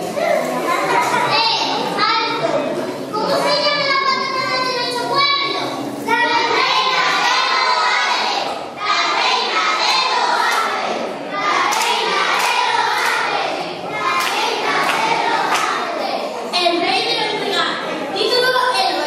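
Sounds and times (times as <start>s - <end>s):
children singing together: 5.3s - 16.5s.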